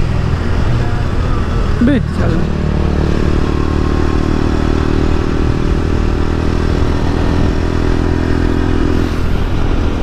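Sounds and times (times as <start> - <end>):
motorcycle engine running steadily: 0.0 - 10.0
wind noise: 5.0 - 10.0.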